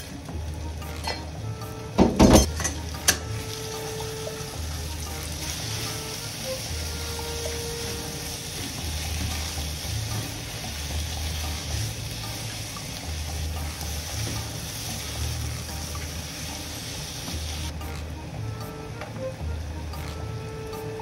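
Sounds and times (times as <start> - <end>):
meat and onions sizzling in a pan: 2.4 - 17.7.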